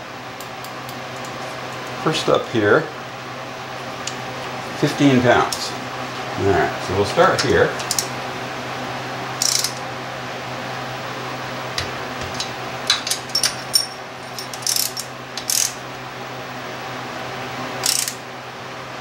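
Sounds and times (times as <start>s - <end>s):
steady low hum: 0.0s - 19.0s
torque wrench clicking: 9.4s - 9.8s, 12.4s - 15.8s, 17.8s - 18.2s.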